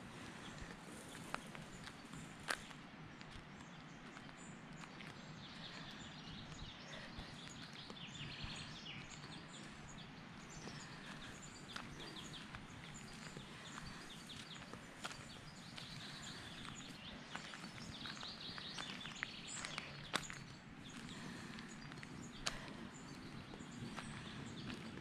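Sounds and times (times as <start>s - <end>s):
low outdoor background hum: 0.0s - 25.0s
birds chirping and singing: 5.2s - 25.0s.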